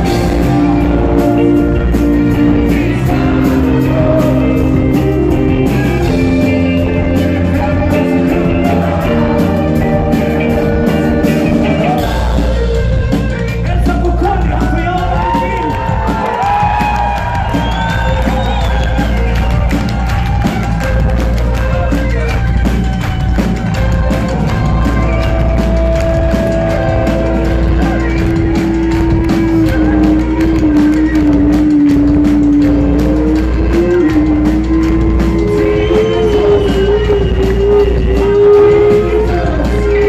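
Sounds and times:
live rock band playing: 0:00.0 - 0:40.0.

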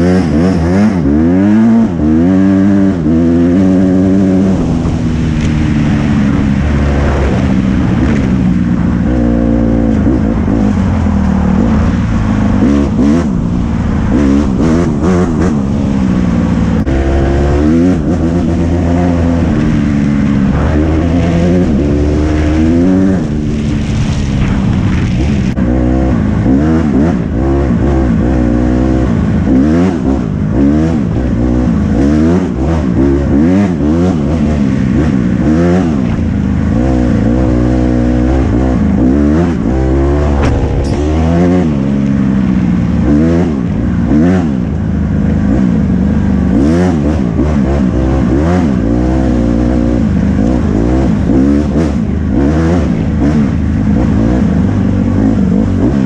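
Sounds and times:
dirt bike engine revving: 0:00.0 - 0:44.8.

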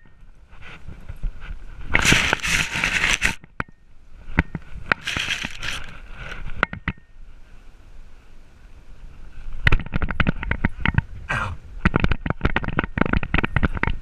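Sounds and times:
grass and fur scraping camera: 0:00.5 - 0:03.4, 0:04.7 - 0:06.6.

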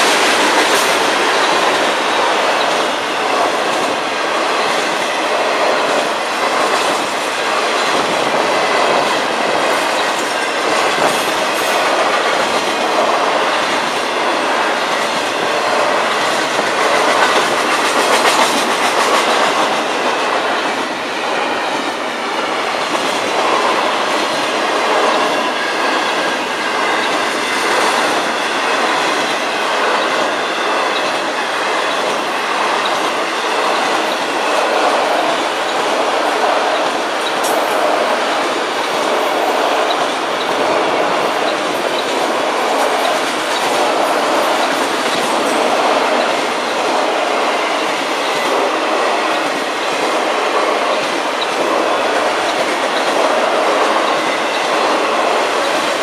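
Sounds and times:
freight train wheels rumbling and clicking: 0:00.0 - 0:56.0.

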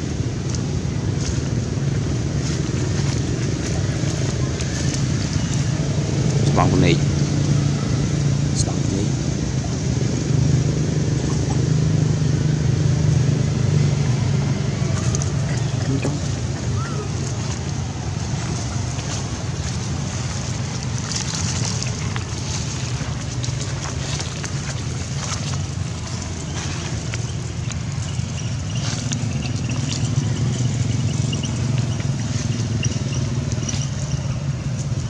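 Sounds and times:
faint clicks and rustles: 0:14.8 - 0:35.0.

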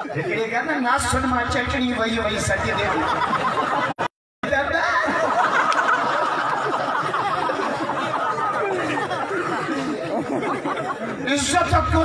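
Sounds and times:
audience laughing: 0:02.4 - 0:12.0.

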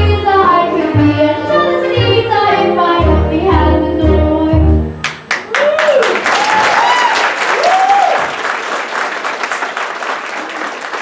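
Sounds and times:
audience applauding and cheering: 0:05.0 - 0:11.0
voices whooping: 0:05.5 - 0:08.3.

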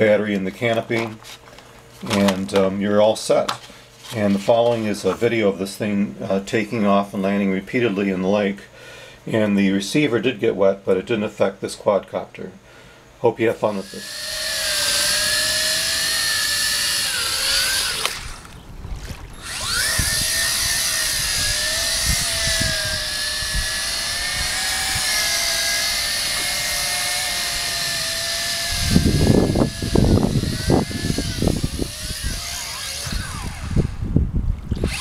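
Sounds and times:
quadcopter propellers whining: 0:13.8 - 0:18.6, 0:19.4 - 0:35.0
low rumbling: 0:14.1 - 0:35.0.

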